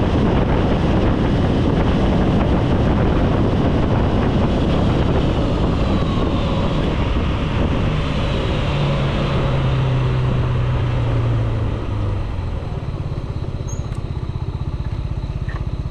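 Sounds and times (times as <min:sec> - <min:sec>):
wind rush over microphone: 0:00.0 - 0:15.2
scooter engine slowing to idle: 0:11.6 - 0:15.9.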